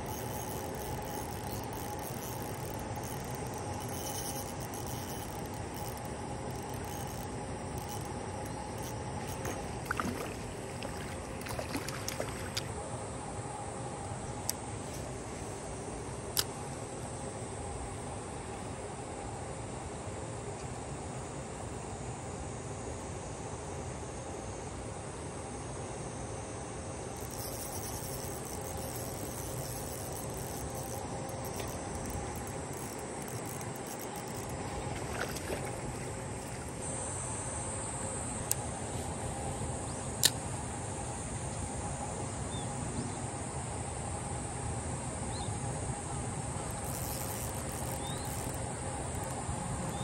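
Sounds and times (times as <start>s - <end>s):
low hum: 0.0s - 18.9s, 26.7s - 50.0s
insects buzzing: 0.0s - 20.4s, 21.1s - 50.0s
sharp clicks: 27.2s - 35.7s.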